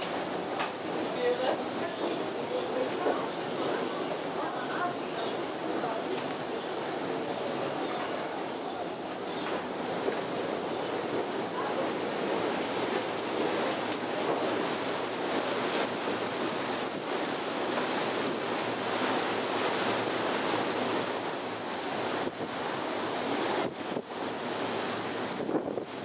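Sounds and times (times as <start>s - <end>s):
wake water churning: 0.0s - 26.0s
wind on microphone: 5.6s - 26.0s.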